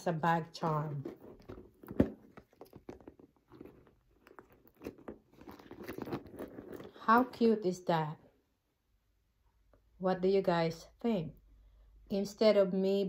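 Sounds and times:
bag rubbing and rustling: 0.6s - 7.4s.

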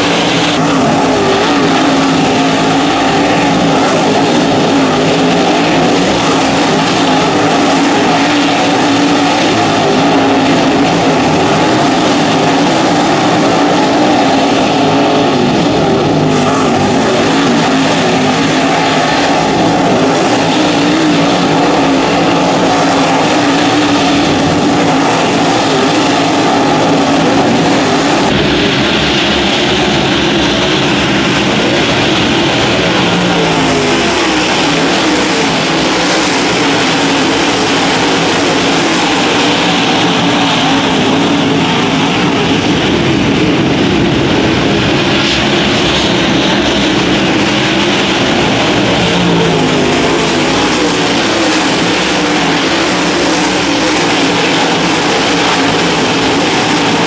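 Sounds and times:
race car engines running hard: 0.0s - 57.0s.

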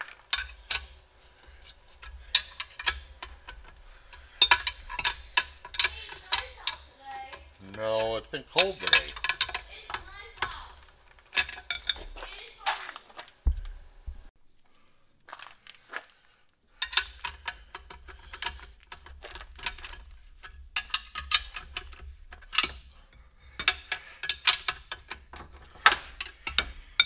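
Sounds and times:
wrench metal clicks and clinks: 0.3s - 10.7s, 11.3s - 12.2s, 16.8s - 27.0s.

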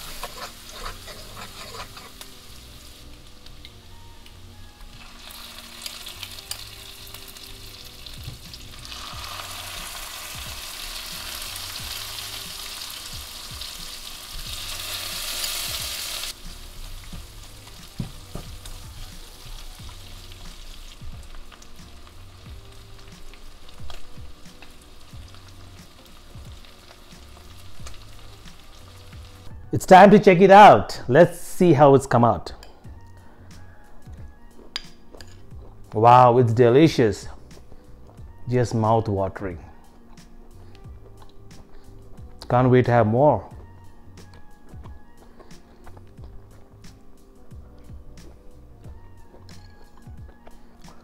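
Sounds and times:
garlic sizzling in butter: 0.0s - 29.5s.

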